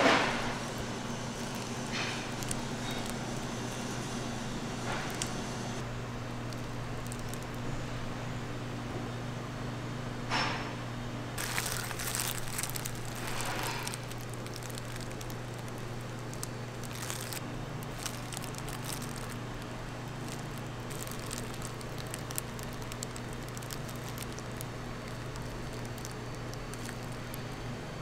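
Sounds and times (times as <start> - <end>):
plastic gloves crinkling: 0.1 - 3.9, 6.4 - 7.7, 11.4 - 27.6
fine scattered crackles: 0.1 - 4.0, 6.4 - 7.7, 11.4 - 27.6
low steady hum: 11.1 - 28.0.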